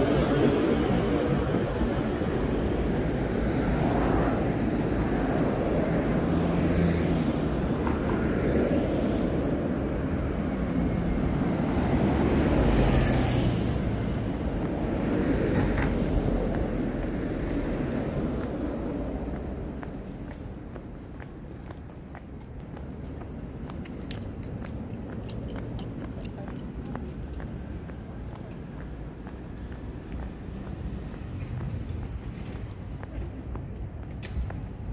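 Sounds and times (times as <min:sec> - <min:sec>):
cars passing: 0:00.0 - 0:34.9.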